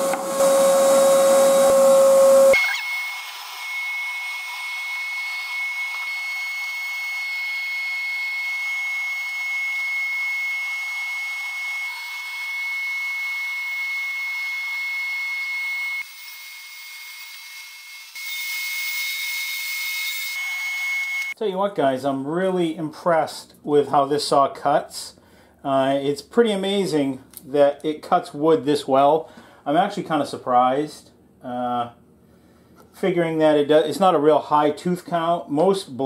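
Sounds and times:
shop vacuum hissing and whining: 0.0s - 21.4s
table saw motor hum: 0.0s - 21.4s.

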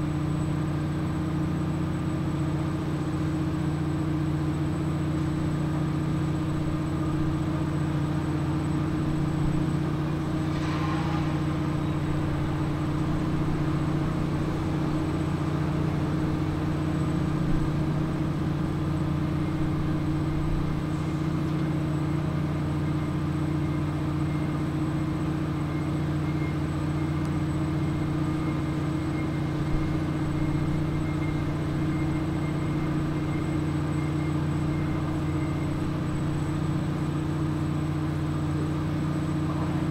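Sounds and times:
engine humming: 5.2s - 21.8s.

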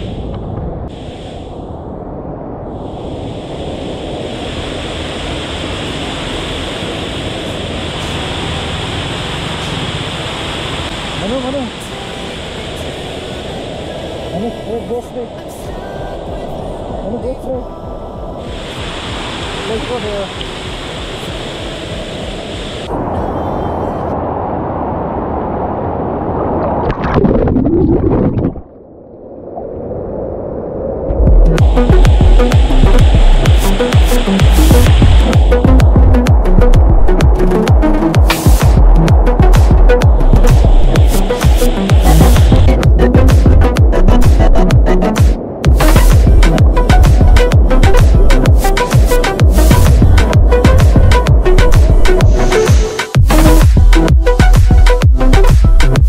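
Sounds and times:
stream cascading over rocks: 4.5s - 14.7s, 18.5s - 23.0s.

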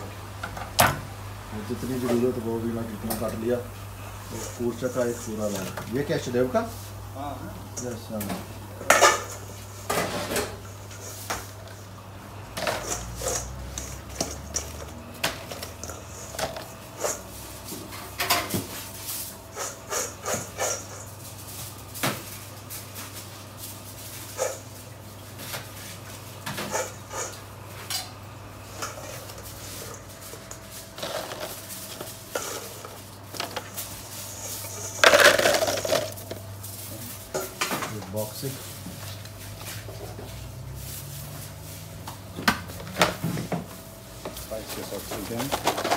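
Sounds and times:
utensils and dishes clinking: 7.7s - 11.8s, 12.6s - 18.6s.

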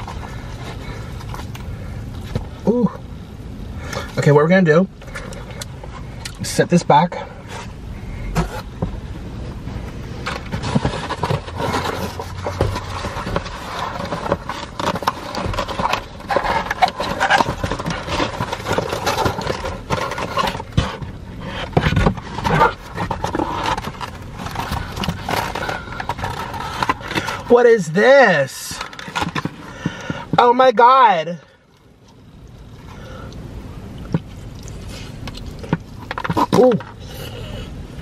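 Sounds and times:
cardboard scraping and rustling: 7.4s - 9.1s, 9.7s - 31.0s, 34.1s - 37.5s.

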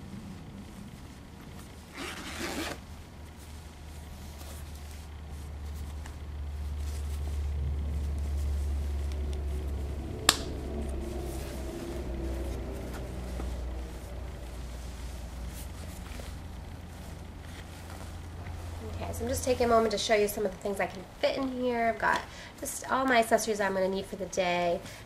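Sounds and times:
low rumble: 0.0s - 22.0s
soft fabric handling: 0.0s - 25.0s
zipper rasp: 1.8s - 2.9s.

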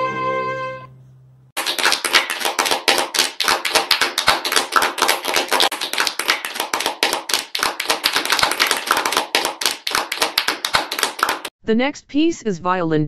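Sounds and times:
people clapping: 1.6s - 11.5s.

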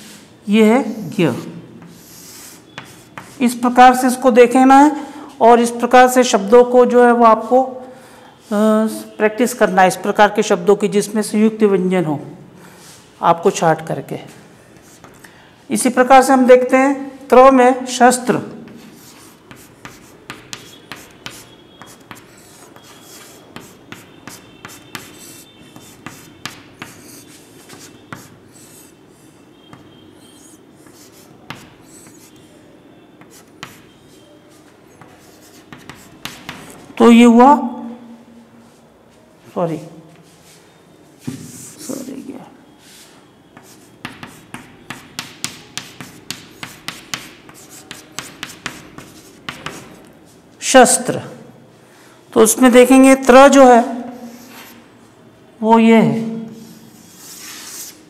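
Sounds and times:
chalk writing on blackboard: 1.4s - 3.6s, 14.7s - 15.2s, 18.7s - 36.9s, 41.3s - 42.2s, 42.8s - 50.2s, 54.2s - 54.9s, 56.6s - 58.0s
chalk tapping on blackboard: 1.8s - 3.4s, 14.8s - 15.3s, 18.7s - 29.0s, 29.6s - 32.5s, 33.2s - 36.8s, 43.6s - 50.2s.

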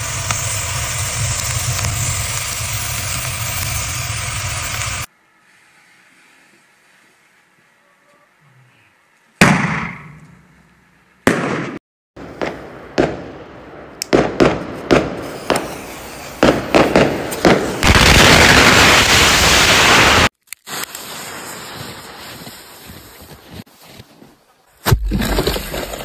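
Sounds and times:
firecrackers exploding: 0.0s - 5.1s, 11.3s - 22.8s.

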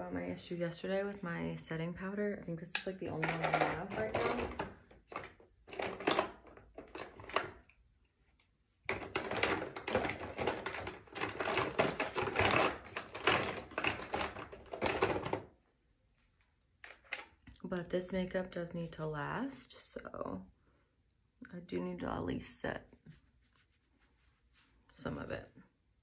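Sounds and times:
plastic containers clattering: 2.8s - 7.7s, 8.8s - 15.6s.

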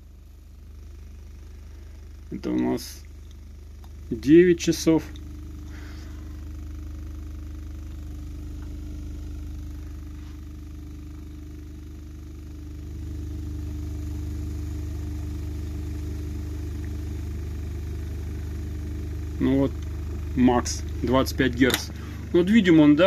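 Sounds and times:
subwoofer deep test tone: 0.0s - 23.0s.

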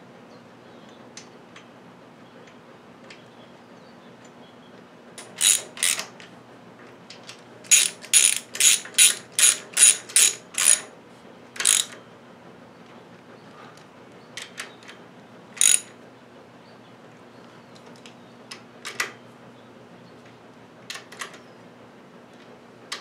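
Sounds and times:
socket ratchet clicking: 5.2s - 6.1s, 7.7s - 10.8s, 11.6s - 12.0s, 15.6s - 15.9s.

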